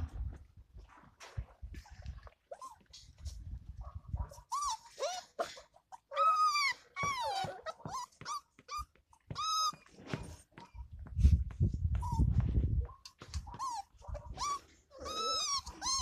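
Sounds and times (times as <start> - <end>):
puppies whining and yelping: 2.5 - 3.1, 4.3 - 10.9, 13.2 - 16.0.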